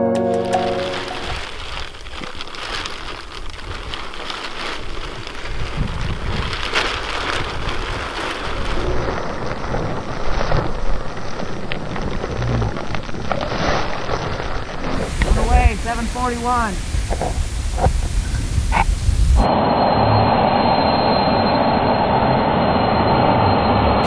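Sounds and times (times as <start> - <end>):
plastic film rustling: 0.6 - 17.8
wind rumbling on microphone: 1.1 - 19.5.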